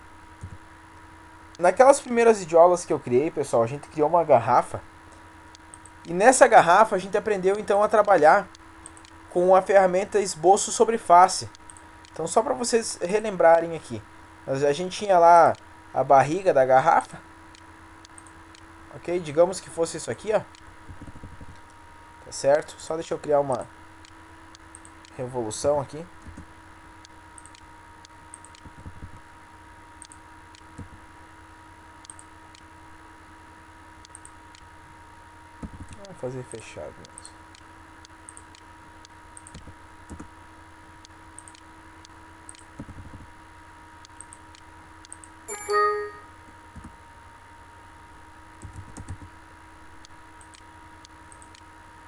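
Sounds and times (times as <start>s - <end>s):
steady electrical hum: 0.0s - 52.0s
computer mouse clicks: 5.5s - 6.2s, 8.1s - 9.2s, 11.5s - 12.2s, 17.5s - 18.7s, 23.5s - 25.2s, 27.4s - 27.7s, 28.3s - 29.2s, 30.0s - 31.0s, 32.0s - 32.7s, 34.0s - 34.7s, 35.6s - 36.2s, 38.3s - 38.7s, 39.4s - 40.3s, 41.4s - 41.7s, 42.5s - 43.3s, 44.0s - 45.4s, 48.6s - 49.3s, 50.0s - 51.7s
keyboard and mouse clicks: 20.5s - 21.8s, 23.5s - 25.2s, 26.2s - 26.5s, 27.4s - 27.6s, 28.3s - 29.2s, 35.6s - 36.2s, 38.3s - 38.7s, 39.4s - 40.3s, 41.4s - 41.6s, 42.5s - 43.3s, 44.1s - 45.3s, 48.6s - 49.3s, 50.4s - 50.6s, 51.3s - 51.7s.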